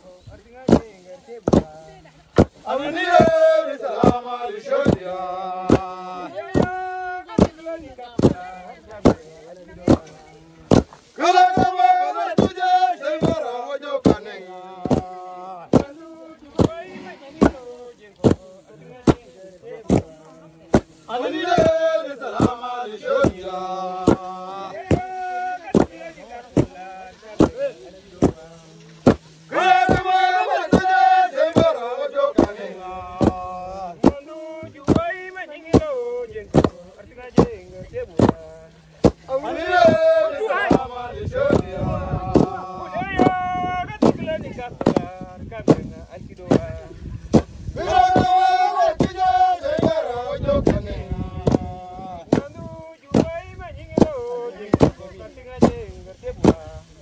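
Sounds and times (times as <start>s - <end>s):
men chanting: 0.0s - 57.0s
hoes thudding on ground: 0.6s - 4.2s, 4.8s - 6.0s, 6.6s - 6.8s, 8.2s - 12.6s, 13.2s - 13.4s, 14.0s - 14.2s, 14.8s - 21.8s, 23.2s - 31.8s, 33.2s - 40.1s, 41.5s - 42.6s, 43.2s - 48.4s, 51.4s - 51.7s, 52.3s - 56.7s.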